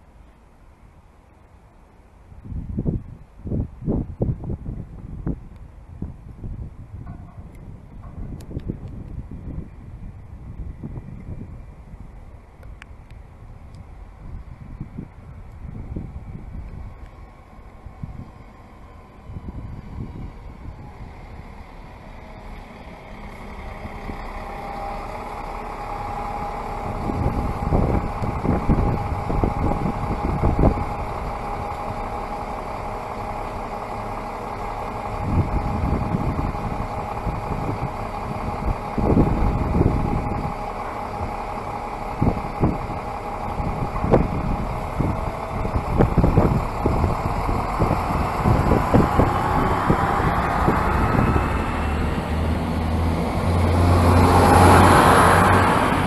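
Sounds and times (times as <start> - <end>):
diesel railcar running in: 0.0 - 56.0
wind buffeting microphone: 2.3 - 56.0
rising whine: 14.8 - 56.0.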